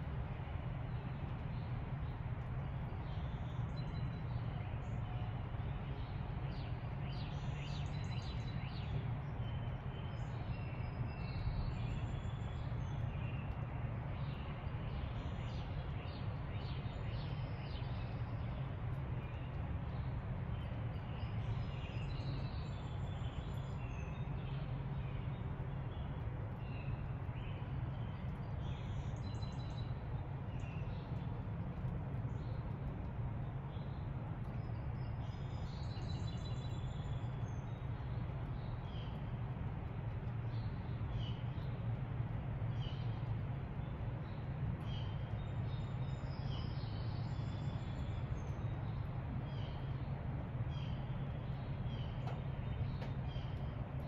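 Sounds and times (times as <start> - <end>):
steady low rumble: 0.0 - 54.0
songbirds chirping and singing: 33.7 - 54.0.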